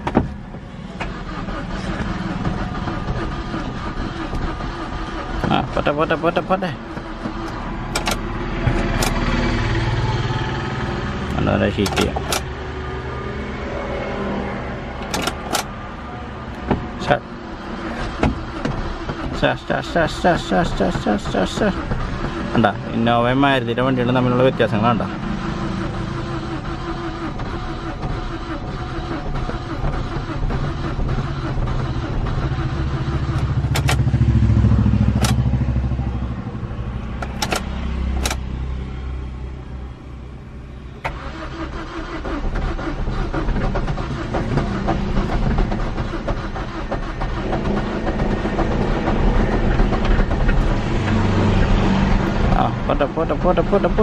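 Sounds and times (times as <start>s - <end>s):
engine cranking on starter motor: 0.0s - 12.6s, 14.9s - 15.8s, 16.5s - 35.9s, 36.6s - 38.5s, 40.8s - 54.0s
sharp clicks: 33.3s - 34.0s, 35.2s - 35.4s.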